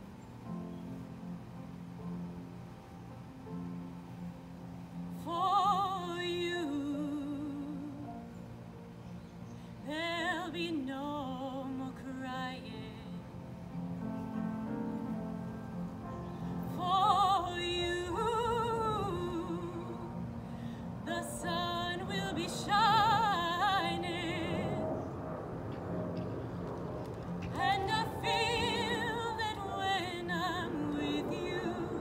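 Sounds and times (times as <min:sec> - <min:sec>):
piano accompaniment: 0:00.0 - 0:32.0
woman singing operatically: 0:05.2 - 0:08.1, 0:09.9 - 0:13.1, 0:16.7 - 0:20.2, 0:21.0 - 0:24.8, 0:27.6 - 0:32.0.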